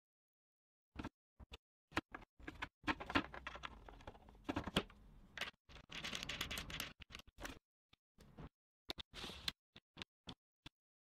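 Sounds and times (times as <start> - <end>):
small parts clicking and tapping: 1.9 - 7.6
scrape: 9.1 - 9.6.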